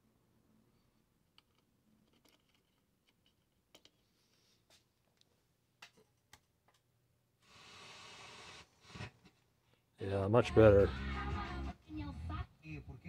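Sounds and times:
small clicks of handled wires: 1.3s - 4.1s, 4.7s - 6.9s.

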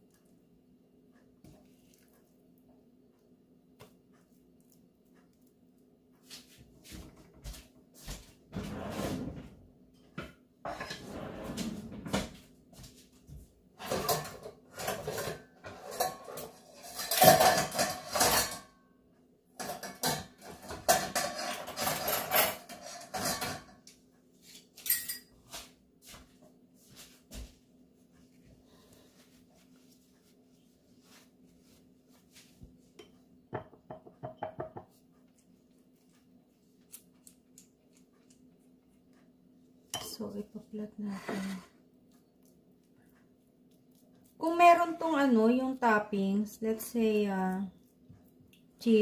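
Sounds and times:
utensil scraping and knocking pot: 10.6s - 11.2s, 13.8s - 18.6s, 19.6s - 23.8s.

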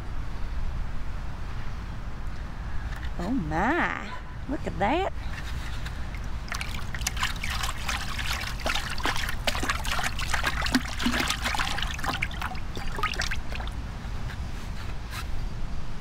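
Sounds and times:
watery clay trickling from bucket: 5.4s - 13.8s.

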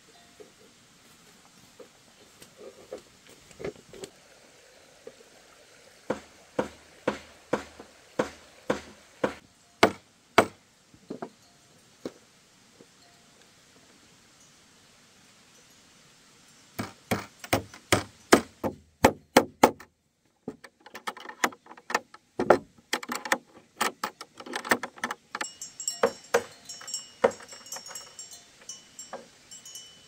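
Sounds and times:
sharp knocks: 6.1s - 11.3s, 16.8s - 19.9s, 20.5s - 28.0s.

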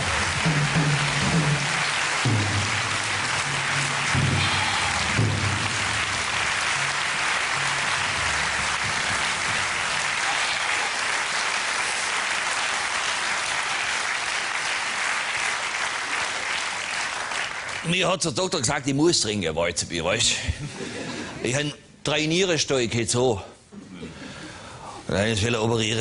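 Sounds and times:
music: 0.0s - 10.2s
audience applauding: 0.0s - 18.2s.

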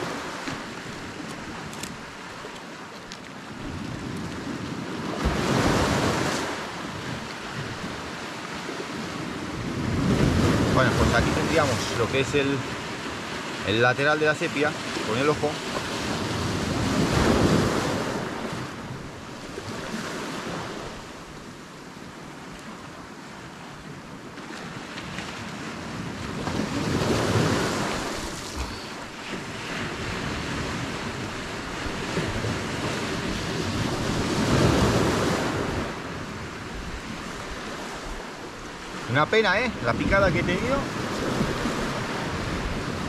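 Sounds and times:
sea waves washing in: 0.0s - 43.0s
wind noise on microphone: 3.4s - 13.6s, 15.6s - 21.1s, 24.7s - 39.2s, 39.8s - 43.0s.

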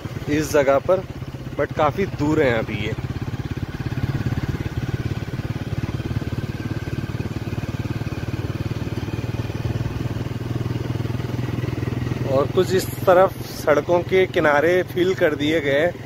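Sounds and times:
vehicle engine running steadily: 0.0s - 16.0s.

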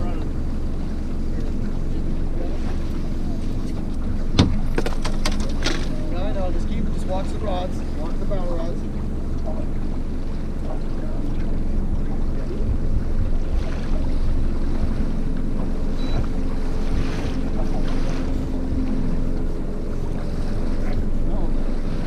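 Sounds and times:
boat motor humming: 0.0s - 22.0s
river water: 0.0s - 22.0s
wind buffeting microphone: 11.5s - 21.8s.

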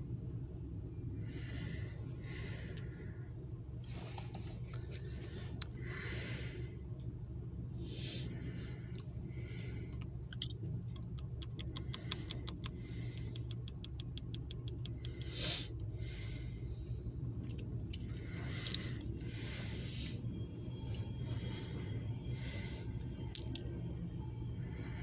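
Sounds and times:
car cabin hum: 0.0s - 25.0s
rapid even clicks: 9.9s - 15.9s
breath through the nose: 11.8s - 13.6s, 14.9s - 16.9s, 18.0s - 20.2s.

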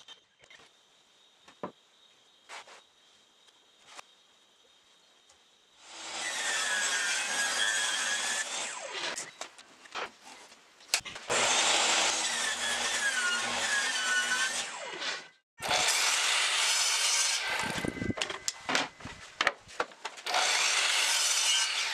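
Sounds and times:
table saw cutting wood: 5.8s - 9.2s, 11.3s - 18.2s, 20.2s - 21.9s.

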